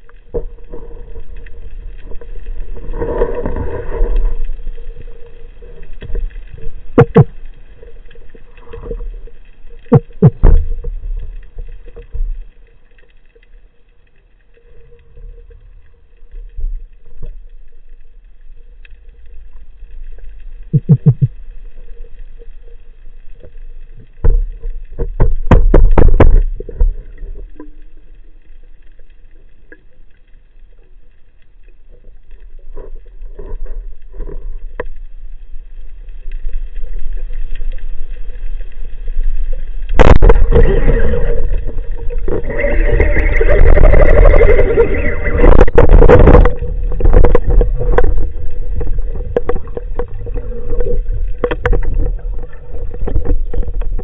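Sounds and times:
bubbling gurgle: 0.0s - 12.6s, 19.5s - 22.0s, 39.1s - 54.0s
low underwater rumble: 0.0s - 54.0s.

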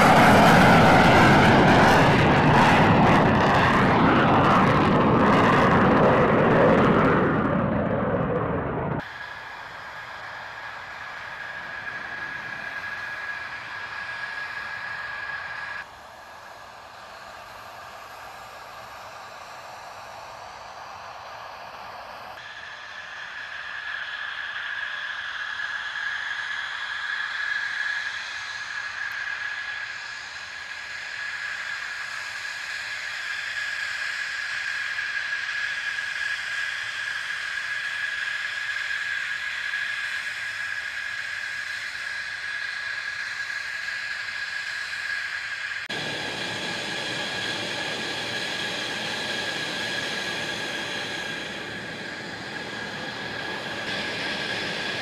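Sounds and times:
deep jet rumble: 0.0s - 9.1s, 45.8s - 55.0s
jet engine whine: 0.0s - 55.0s.

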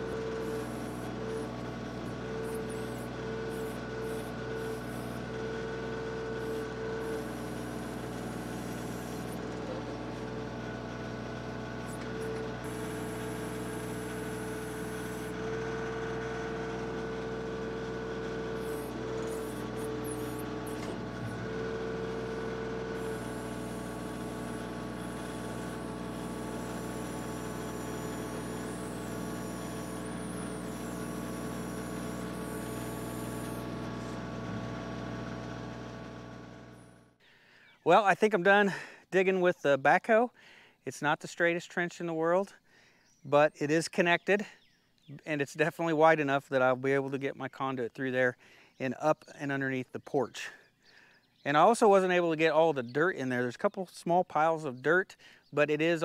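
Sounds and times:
tractor diesel engine running: 0.0s - 37.2s
high steady whine: 22.9s - 34.8s.

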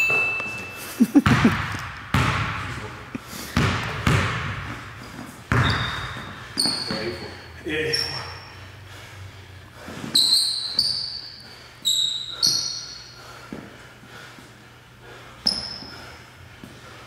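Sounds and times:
sneaker squeaks: 0.0s - 1.5s, 3.6s - 8.8s, 9.8s - 13.2s, 15.4s - 16.2s
basketball dribbling: 0.0s - 7.3s.

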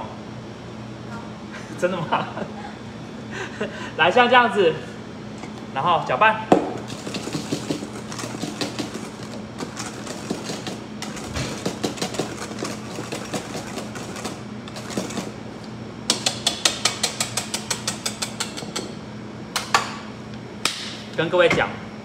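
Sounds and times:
whisk scraping a metal bowl: 6.9s - 15.4s.

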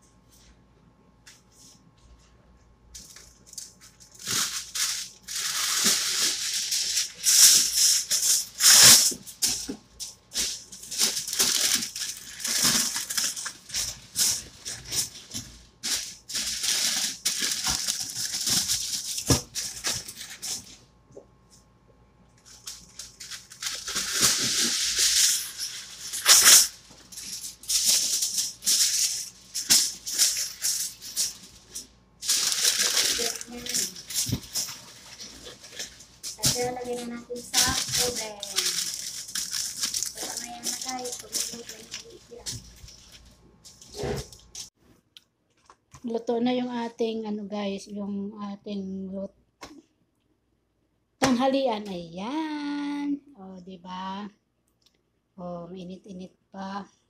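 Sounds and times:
aluminium foil crinkling: 3.0s - 20.8s, 22.4s - 44.7s.

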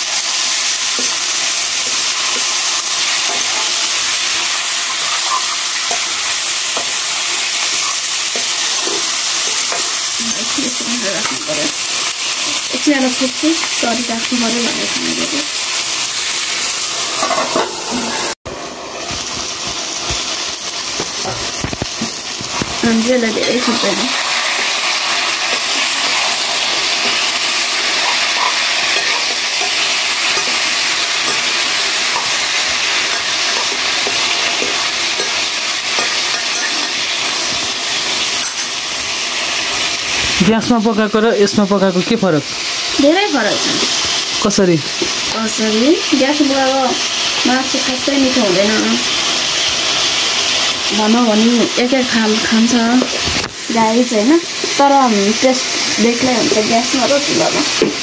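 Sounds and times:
chicken sizzling in hot oil: 0.0s - 58.0s.

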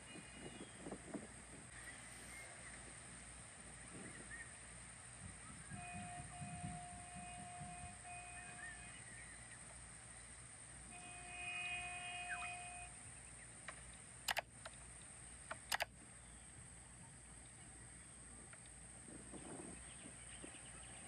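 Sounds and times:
vehicle horn blasts: 5.7s - 9.1s, 10.9s - 13.0s
sharp clicks: 13.6s - 14.8s, 15.4s - 16.0s.

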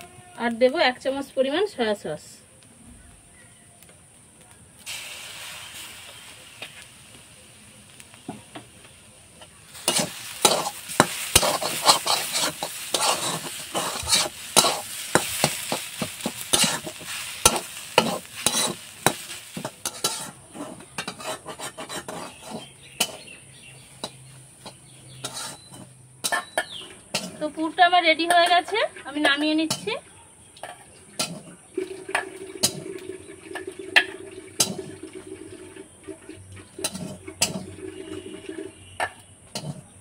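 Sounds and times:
filling sizzling in oil: 4.8s - 30.0s, 30.6s - 40.0s
metal spatula scraping a pan: 9.4s - 27.6s, 30.6s - 32.8s, 33.5s - 34.9s, 36.6s - 40.0s.

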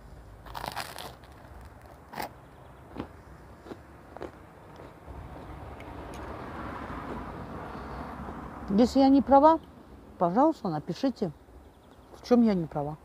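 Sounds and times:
mouth chewing crunchy food: 0.4s - 6.3s.

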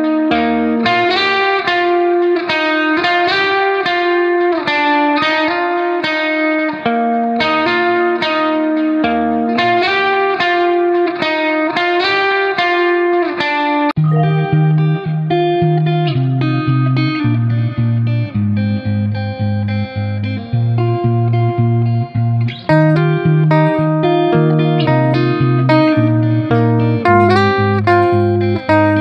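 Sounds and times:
guitar picking a melody: 0.0s - 29.0s.

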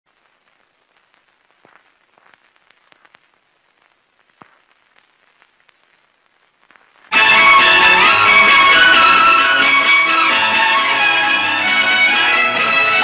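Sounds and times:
faint clicks and crackles: 0.1s - 7.2s
low hiss: 0.1s - 13.0s.

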